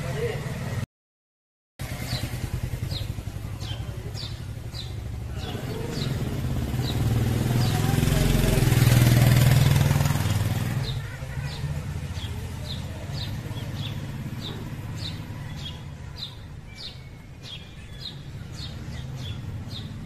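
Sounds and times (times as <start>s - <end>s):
low traffic rumble: 0.0s - 0.9s, 1.8s - 20.0s
engine: 1.8s - 16.6s
bird chirping: 2.0s - 20.0s.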